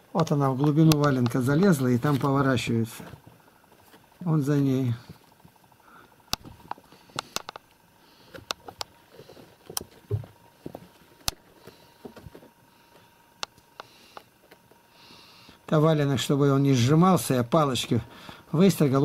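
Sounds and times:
kittens scuffling: 8.0 - 13.1.

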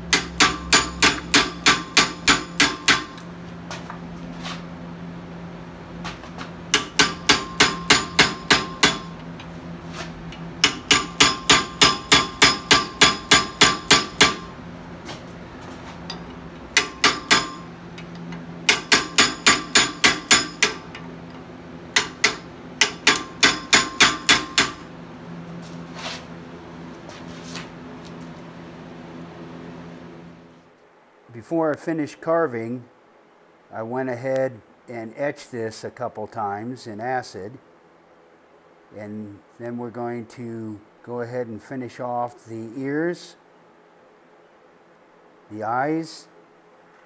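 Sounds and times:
steady low hum: 0.0 - 47.0
hammer striking chisel on metal: 0.1 - 3.2, 6.7 - 9.5, 10.3 - 14.6, 16.1 - 21.1, 21.9 - 24.9.

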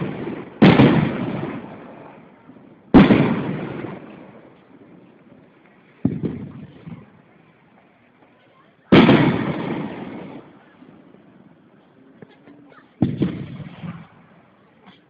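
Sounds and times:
firework shells booming: 0.0 - 5.0, 6.0 - 7.2, 8.9 - 11.0, 13.0 - 14.5.

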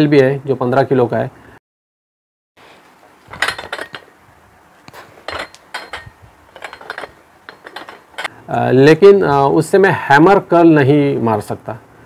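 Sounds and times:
metal dumbbell plates clinking: 3.3 - 4.1, 5.2 - 8.3.

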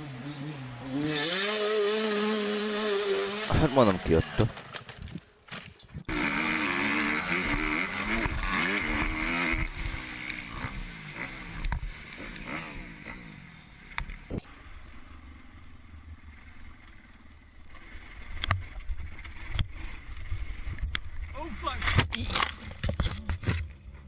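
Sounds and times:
dirt bike engine revving: 0.0 - 4.8, 6.1 - 16.1.

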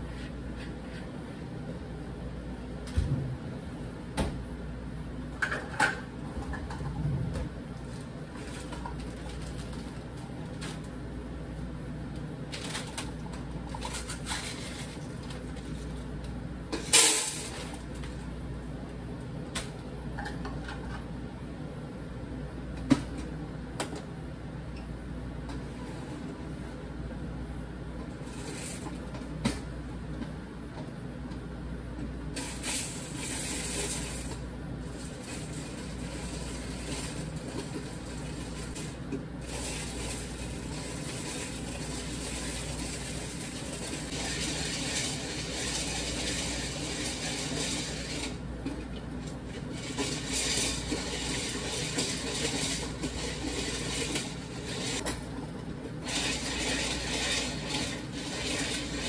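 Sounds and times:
popcorn popper rattling: 32.4 - 48.4, 49.5 - 55.0, 56.0 - 59.0.

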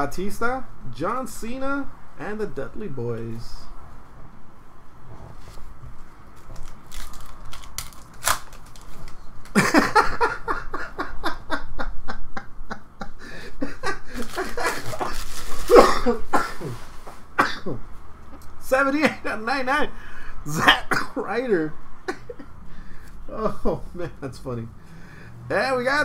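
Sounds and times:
trading cards clicking and rustling: 6.4 - 9.6, 14.2 - 15.7
man laughing: 9.5 - 16.8, 22.1 - 22.5, 23.3 - 24.5.

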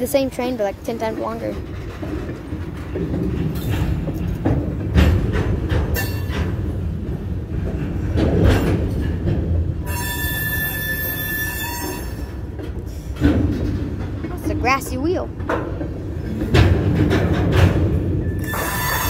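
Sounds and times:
train wheels rumbling on rail: 0.0 - 19.0
high metallic squeal: 9.8 - 12.4, 18.3 - 19.0.

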